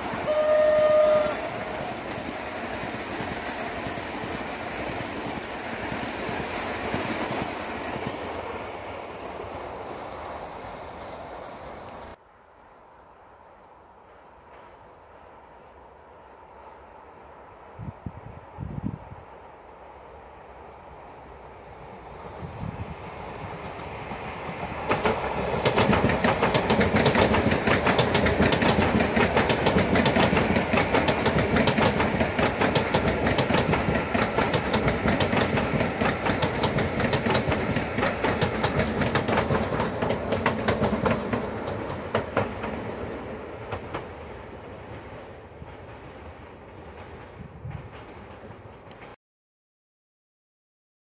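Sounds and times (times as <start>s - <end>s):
train wheels clicking over rail joints: 23.3s - 49.2s.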